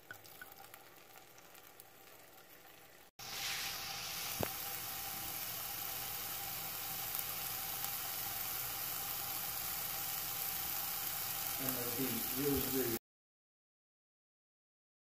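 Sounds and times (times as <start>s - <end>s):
mushrooms sizzling in a pan: 2.9s - 13.0s.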